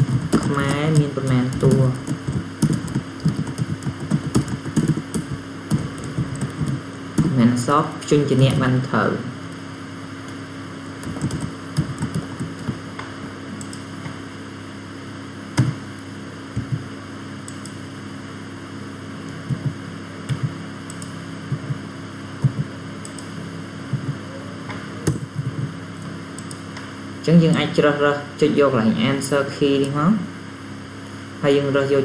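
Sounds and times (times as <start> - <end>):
low electrical hum: 0.0 - 32.0
keyboard taps: 1.5 - 7.4, 11.0 - 14.2, 15.6 - 15.8, 16.6 - 16.9, 19.3 - 21.8, 22.4 - 23.2
mouse clicks: 17.5 - 17.8, 20.3 - 21.2, 26.4 - 26.9.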